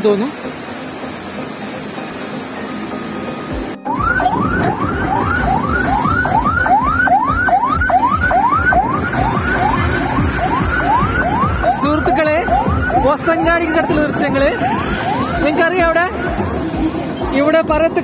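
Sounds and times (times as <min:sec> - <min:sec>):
traffic noise: 0:00.0 - 0:18.0
electronic siren alarm whooping: 0:03.8 - 0:16.8.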